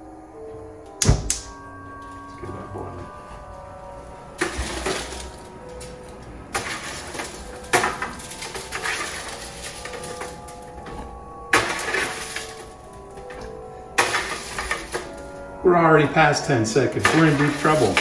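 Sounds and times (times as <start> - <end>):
utensil scraping metal baking sheet: 6.6 - 10.3.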